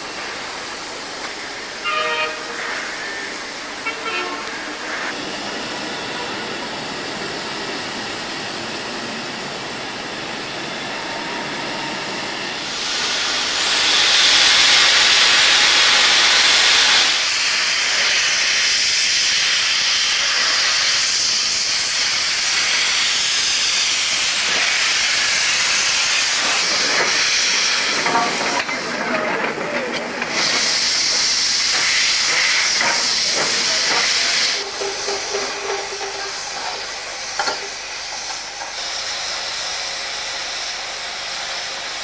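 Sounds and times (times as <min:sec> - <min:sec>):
steam locomotive venting steam: 0:00.0 - 0:42.0.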